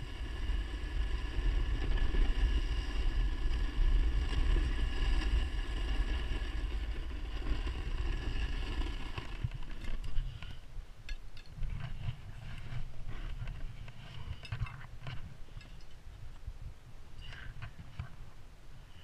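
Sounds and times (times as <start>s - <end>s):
snowboard scraping over icy snow: 0.0s - 10.4s.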